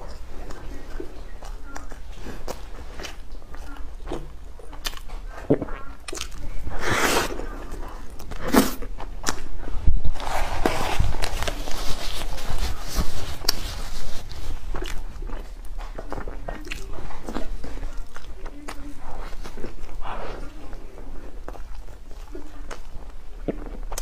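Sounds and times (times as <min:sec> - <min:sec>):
biting and chewing bread: 0:00.0 - 0:24.0
tissue rustling: 0:10.1 - 0:14.7.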